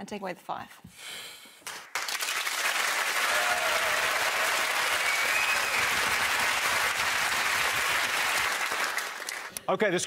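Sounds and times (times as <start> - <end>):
audience applauding: 1.6 - 9.6.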